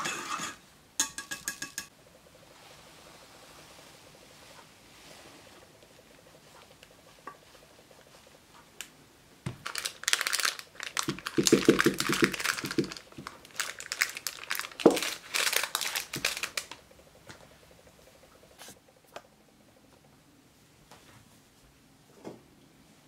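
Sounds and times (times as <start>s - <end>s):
baking parchment crinkling: 9.5s - 16.8s.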